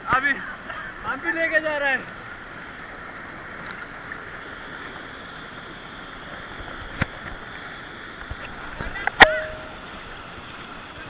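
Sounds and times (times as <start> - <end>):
waterfall rushing: 0.0 - 11.0.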